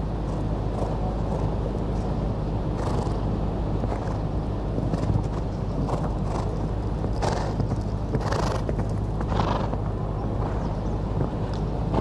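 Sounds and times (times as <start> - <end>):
steady low rumble: 0.0 - 12.0
hoofbeats on sand: 3.9 - 12.0.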